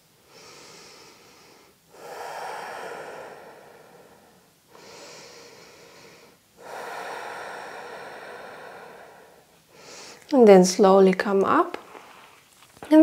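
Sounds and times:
woman breathing deeply: 0:00.2 - 0:10.3.

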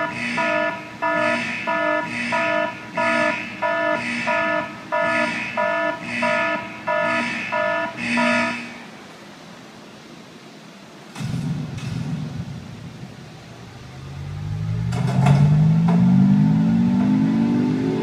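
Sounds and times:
car horn honking: 0:00.0 - 0:08.8.

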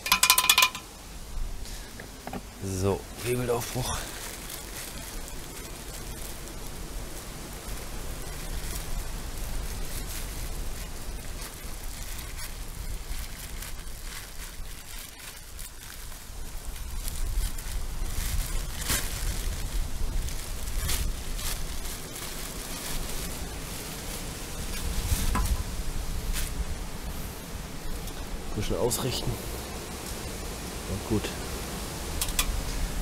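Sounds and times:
small crackles and taps: 0:00.0 - 0:00.9, 0:01.9 - 0:02.6, 0:03.8 - 0:25.7, 0:28.0 - 0:28.3, 0:32.1 - 0:32.8
outdoor hiss: 0:00.0 - 0:33.0
wind rumbling on microphone: 0:00.6 - 0:30.8, 0:31.7 - 0:33.0.

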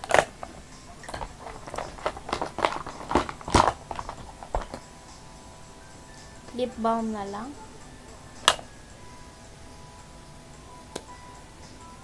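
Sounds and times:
makeup containers clicking together: 0:00.0 - 0:04.8.

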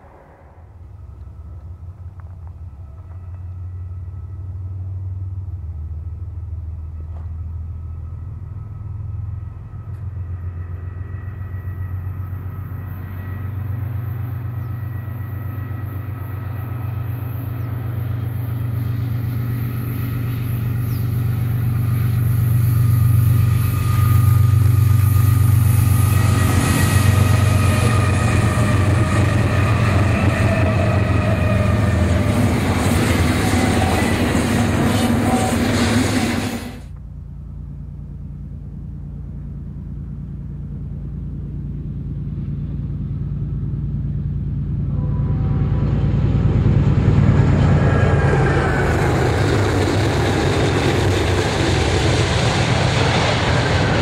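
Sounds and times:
locomotive engines rumbling: 0:00.0 - 0:54.0
steady whine: 0:00.0 - 0:54.0.

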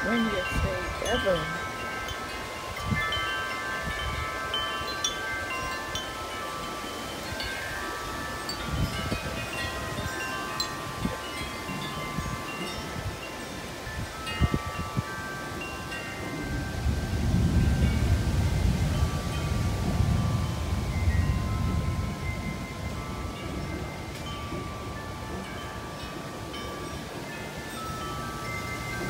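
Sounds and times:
tubular wind chimes ringing: 0:00.0 - 0:29.0
wind buffeting microphone: 0:00.0 - 0:29.0.

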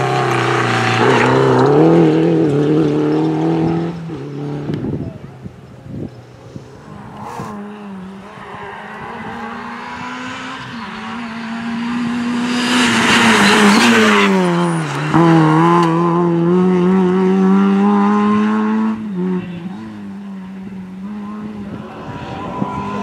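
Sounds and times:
rally car engine revving: 0:00.0 - 0:05.0, 0:06.4 - 0:23.0.

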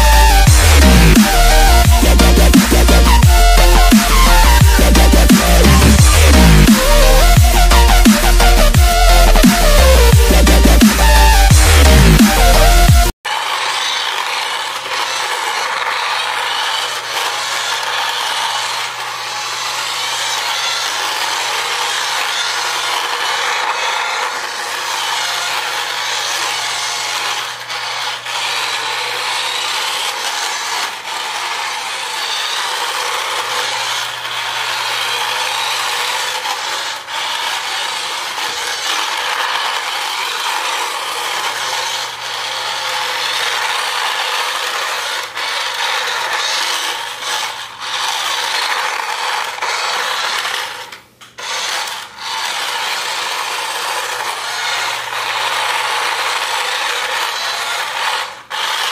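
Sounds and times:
toy car motor whirring: 0:00.0 - 0:58.9.

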